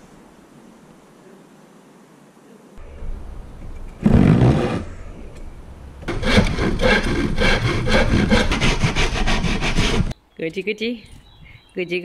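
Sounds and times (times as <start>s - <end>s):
hand saw cutting wood: 4.0s - 4.9s, 6.1s - 10.2s.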